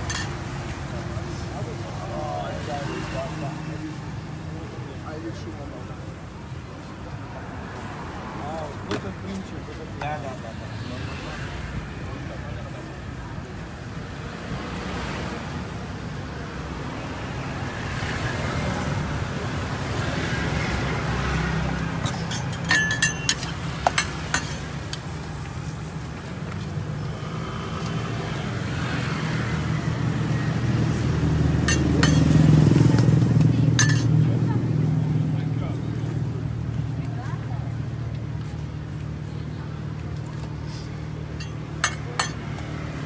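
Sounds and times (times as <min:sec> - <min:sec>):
cooking utensils clinking: 0:00.0 - 0:00.4, 0:22.0 - 0:24.7, 0:31.7 - 0:32.3, 0:33.8 - 0:34.1
street traffic rumble: 0:00.0 - 0:43.0.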